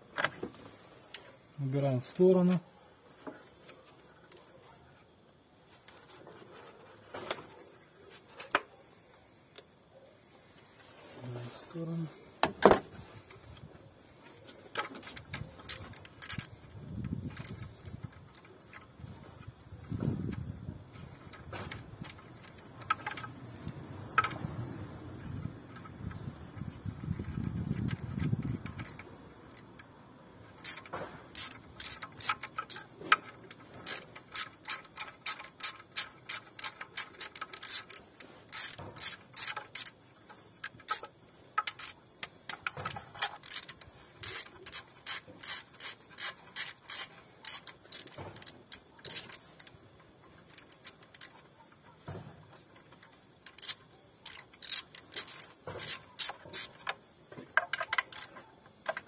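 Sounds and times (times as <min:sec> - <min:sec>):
hand ratchet clicking: 0:14.7 - 0:18.9, 0:25.7 - 0:29.9, 0:30.5 - 0:51.6, 0:52.7 - 0:57.0, 0:57.6 - 0:59.0.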